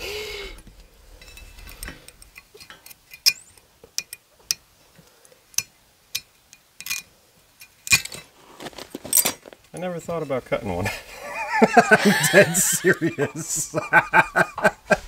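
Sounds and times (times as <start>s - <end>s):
tool clinking on metal wheel rim: 1.2s - 4.7s, 5.5s - 8.3s.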